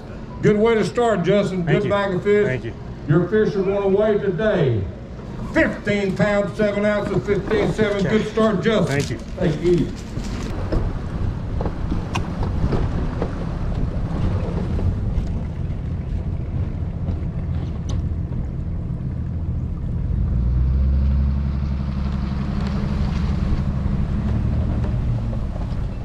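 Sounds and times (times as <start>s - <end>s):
engine running: 0.0s - 26.0s
wind buffeting microphone: 5.9s - 20.3s.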